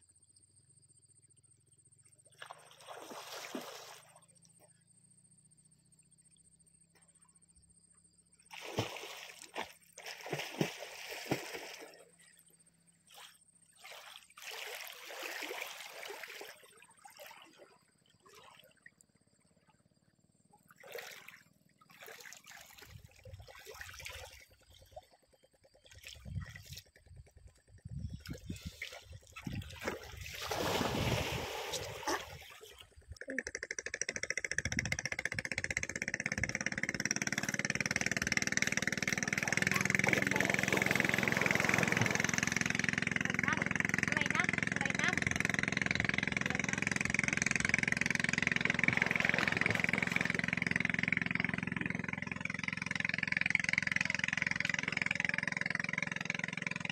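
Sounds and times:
lake water splashing at shore: 0:02.3 - 0:04.4, 0:08.5 - 0:18.9, 0:20.7 - 0:25.2, 0:25.8 - 0:27.0, 0:28.1 - 0:33.0, 0:36.2 - 0:56.0.

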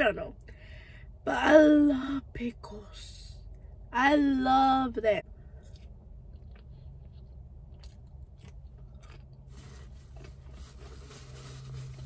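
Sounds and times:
steady low hum: 0:00.0 - 0:12.0
crunchy food chewing: 0:05.6 - 0:12.0.

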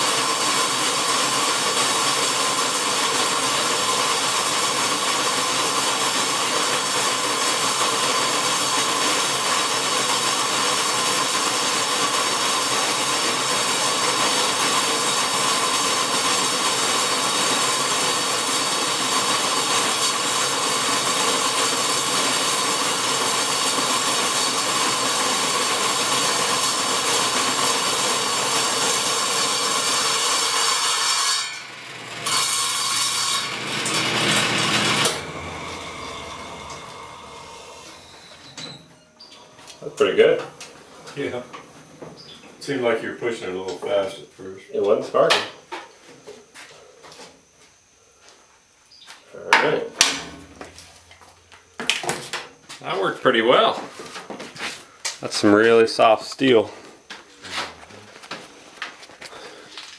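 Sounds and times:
saw cutting through steel: 0:00.0 - 0:38.8.

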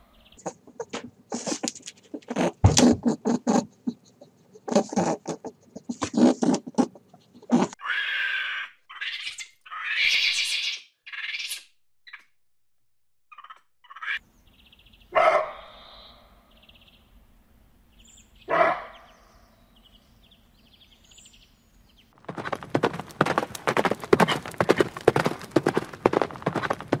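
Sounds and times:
small birds chirping: 0:00.0 - 0:02.2, 0:13.3 - 0:17.3, 0:17.9 - 0:27.0
monkeys screeching: 0:07.5 - 0:11.6
deer barking: 0:15.1 - 0:16.4, 0:18.5 - 0:19.1
horses' hooves galloping: 0:22.2 - 0:27.0.

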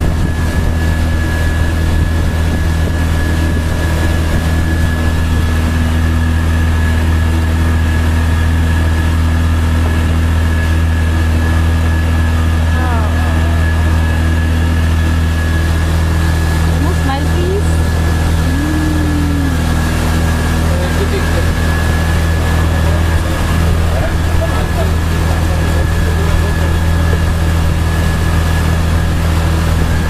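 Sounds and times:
vehicle engine idling: 0:01.3 - 0:30.0
short wavering pitched call: 0:18.4 - 0:20.2.

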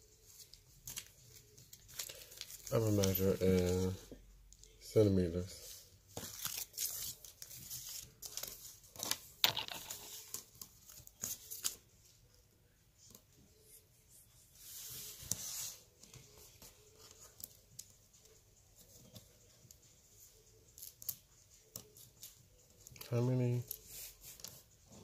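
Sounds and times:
paper rustle: 0:00.2 - 0:04.1, 0:05.6 - 0:12.2.

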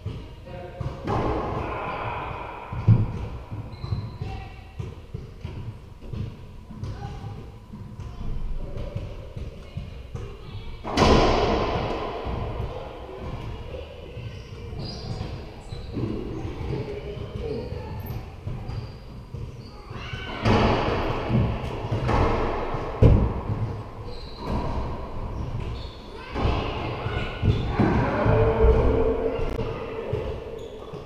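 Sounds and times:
shoe squeaks on hardwood floor: 0:03.7 - 0:04.6, 0:14.2 - 0:16.5, 0:17.4 - 0:20.3, 0:24.0 - 0:24.6, 0:25.4 - 0:26.3
racquetball cracking off racquets and walls: 0:08.8 - 0:13.8, 0:18.4 - 0:31.0.

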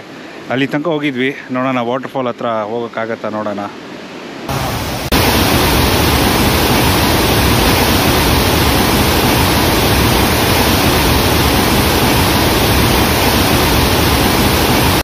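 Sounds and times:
waterfall rushing: 0:04.5 - 0:15.0.

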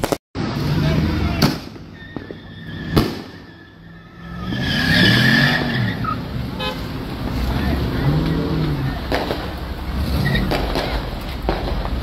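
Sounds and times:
firework bangs: 0:00.0 - 0:03.8, 0:08.7 - 0:12.0
tires squealing on pavement: 0:00.4 - 0:12.0
car engine revving: 0:02.6 - 0:12.0.

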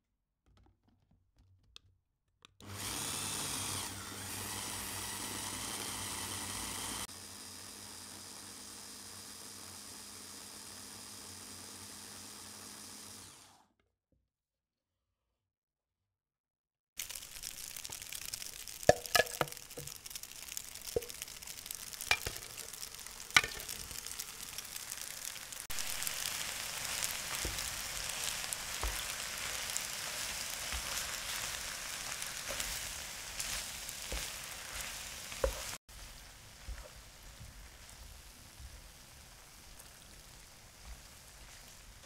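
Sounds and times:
food sizzling in a frying pan: 0:17.0 - 0:42.0
utensil knocking against pan: 0:23.3 - 0:23.9.

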